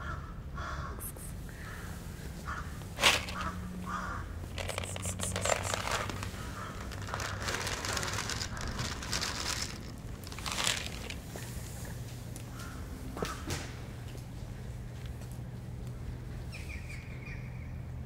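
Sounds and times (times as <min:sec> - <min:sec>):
kibble rattling onto concrete: 0:03.0 - 0:03.6, 0:04.5 - 0:11.6.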